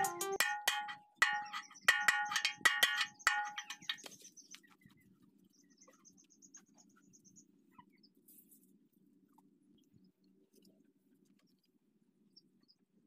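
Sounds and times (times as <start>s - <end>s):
metal taps on steel: 0.0s - 4.2s.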